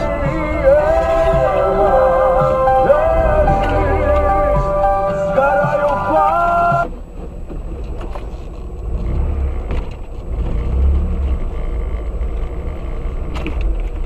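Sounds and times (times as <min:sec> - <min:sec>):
engine and road rumble: 0:00.0 - 0:14.0.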